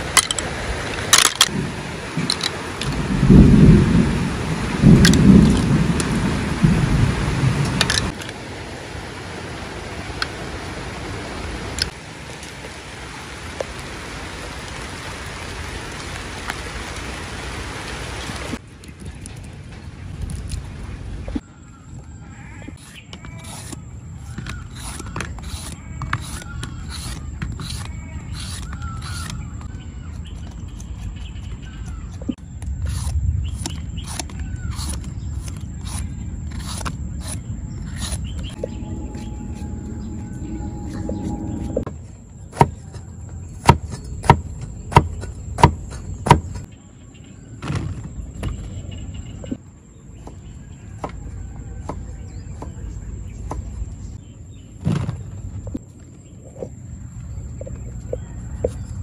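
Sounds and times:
peeler scraping gourd skin: 22.7 - 38.6
cleaver chopping on wooden block: 43.6 - 46.6.

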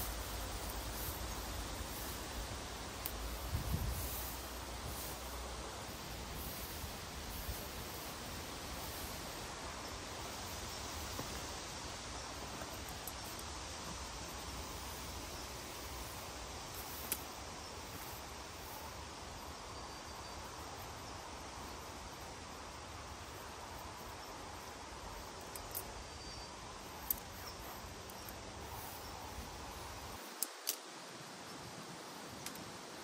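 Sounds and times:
forest ambience hiss: 0.0 - 33.0.

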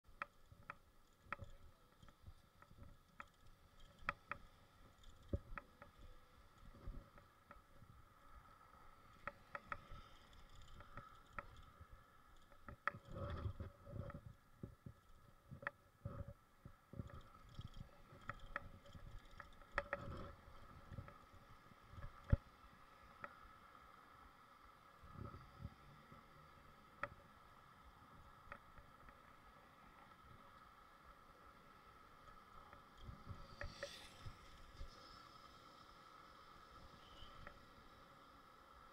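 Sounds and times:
bicycle clicks and knocks: 0.1 - 7.8, 9.1 - 11.7, 17.0 - 21.4.

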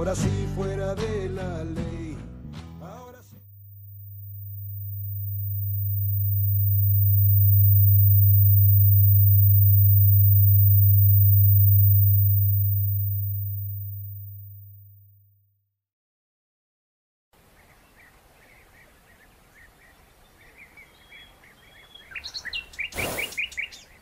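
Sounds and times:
low electronic hum: 3.5 - 15.2.

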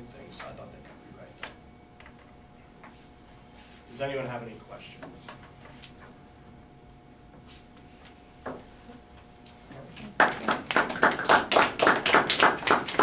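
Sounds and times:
people clapping hands: 9.9 - 13.0.

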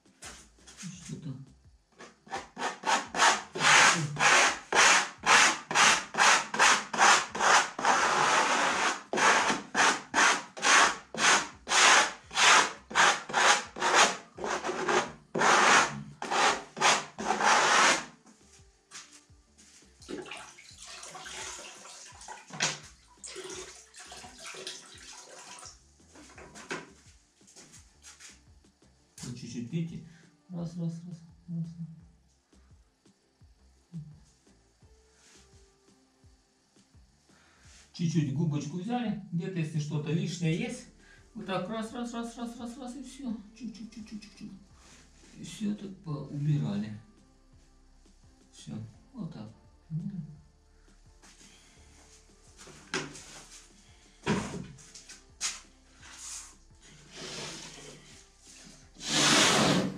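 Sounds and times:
plastic spatula scraping plaster: 2.0 - 18.1, 59.0 - 59.9.

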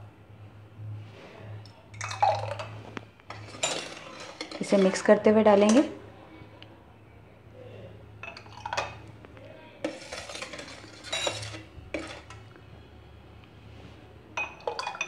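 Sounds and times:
ladle scraping steel bowl: 2.0 - 6.0, 9.8 - 12.5
swishing stir: 9.8 - 12.4.

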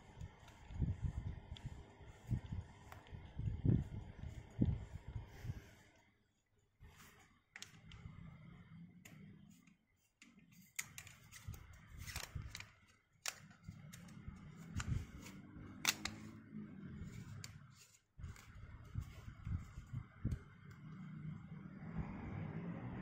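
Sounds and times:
lens clicks: 14.7 - 16.3.

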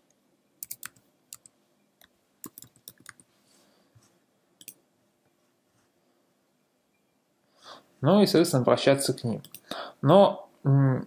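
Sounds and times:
keyboard keys clicking: 0.6 - 1.5, 2.4 - 3.2.

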